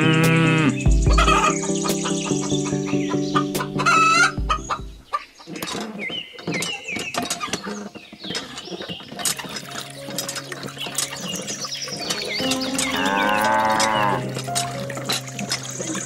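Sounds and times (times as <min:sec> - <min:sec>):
background music with held tones: 0:00.0 - 0:05.2, 0:09.1 - 0:16.0
chickens clucking: 0:00.1 - 0:16.0.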